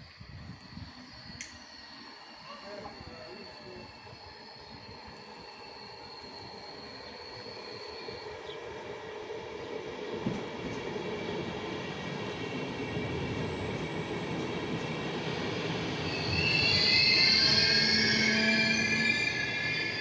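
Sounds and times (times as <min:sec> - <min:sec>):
train rumbling on rails: 0:00.0 - 0:20.0
high-pitched brake squeal: 0:00.7 - 0:08.6, 0:15.3 - 0:20.0.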